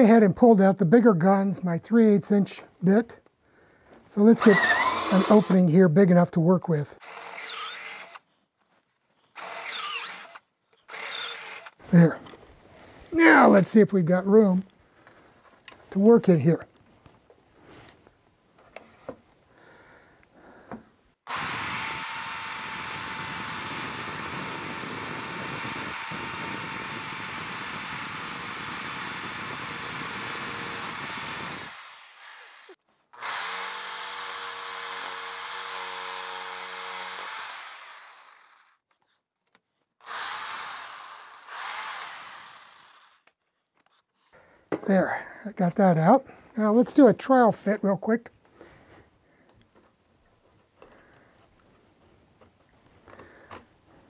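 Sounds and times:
jigsaw cutting wood: 4.3s - 5.7s, 7.0s - 8.2s, 9.4s - 12.0s, 21.3s - 38.8s, 40.0s - 43.4s.

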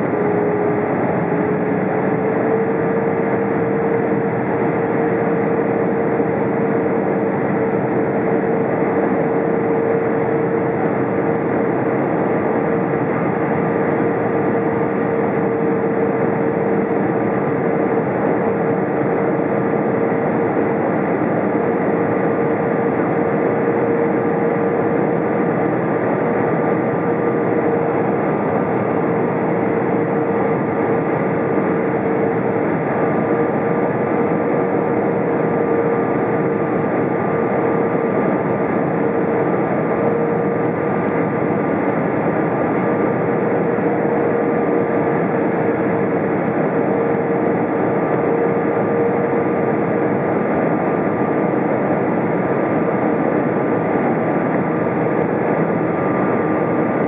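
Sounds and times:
constant hum: 0.0s - 57.0s
rush of engines and airflow: 0.0s - 57.0s.

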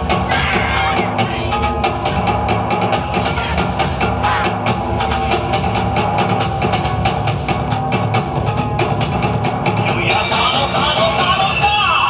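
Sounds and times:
dance music over loudspeakers: 0.0s - 12.0s.

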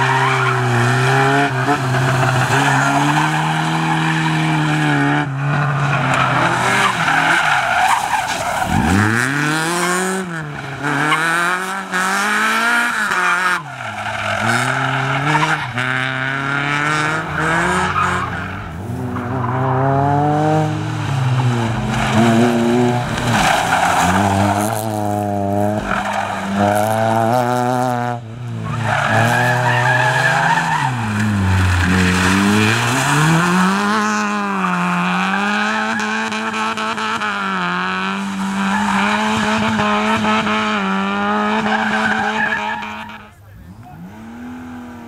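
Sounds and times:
car engines revving: 0.0s - 45.0s.

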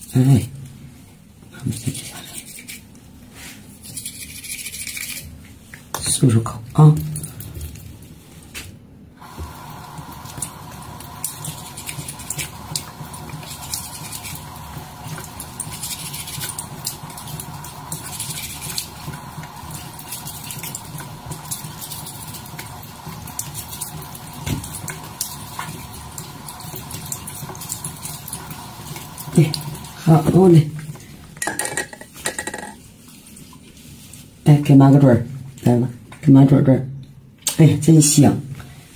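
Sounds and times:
tap water running into sink: 9.2s - 32.8s.

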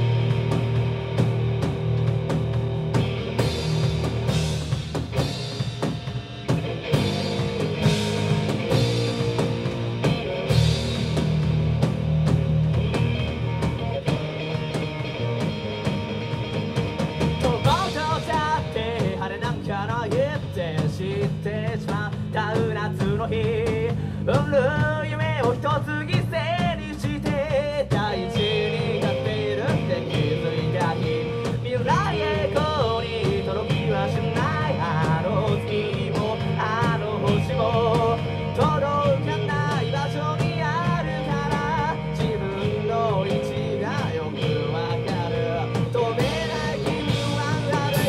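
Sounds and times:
rock band playing live: 0.0s - 48.0s
man singing: 17.3s - 48.0s.

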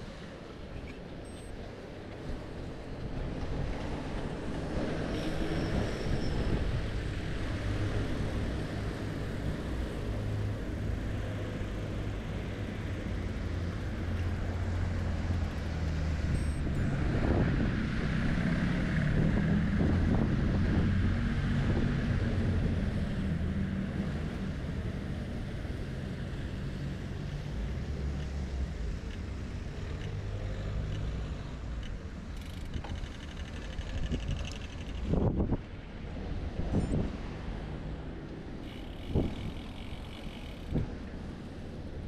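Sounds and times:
bicycle rumble: 16.9s - 35.7s, 38.4s - 42.0s
wind buffeting microphone: 33.9s - 37.3s.

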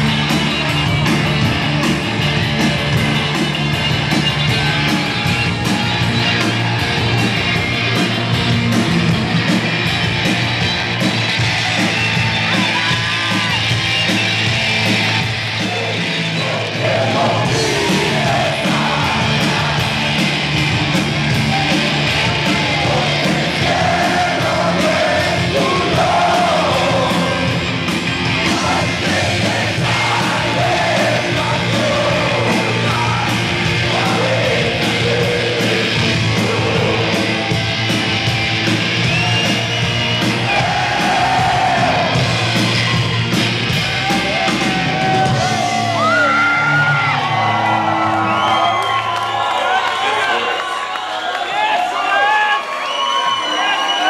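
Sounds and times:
live rock band playing: 0.0s - 49.0s
man singing: 22.8s - 27.6s, 28.4s - 37.2s.

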